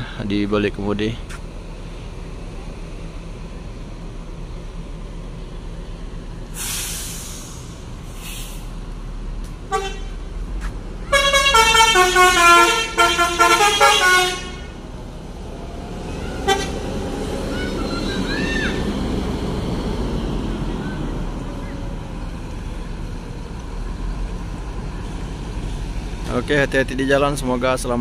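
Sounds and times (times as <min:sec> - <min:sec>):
coach diesel engine: 0:00.0 - 0:28.0
air hiss: 0:06.5 - 0:08.8
multi-note air horn tune: 0:09.7 - 0:10.2, 0:11.1 - 0:14.7.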